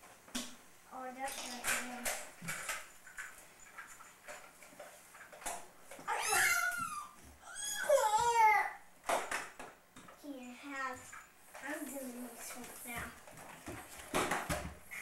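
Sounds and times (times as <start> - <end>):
toddler squealing: 6.1 - 8.7.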